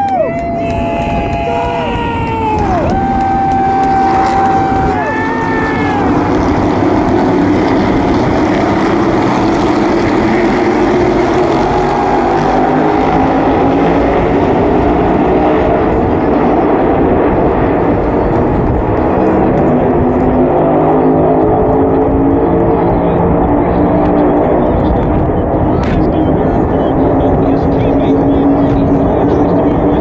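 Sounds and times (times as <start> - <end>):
race car engines droning: 0.0 - 30.0.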